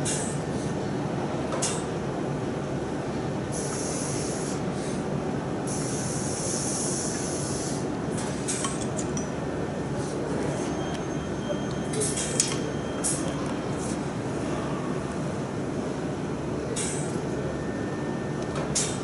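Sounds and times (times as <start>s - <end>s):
factory hum: 0.0s - 19.0s
air hoist hissing: 3.5s - 5.0s, 5.7s - 8.7s.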